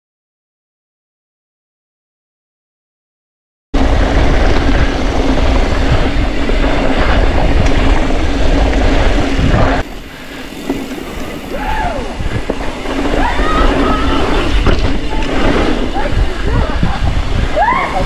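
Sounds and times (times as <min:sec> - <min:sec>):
wind buffeting microphone: 0:03.8 - 0:18.0.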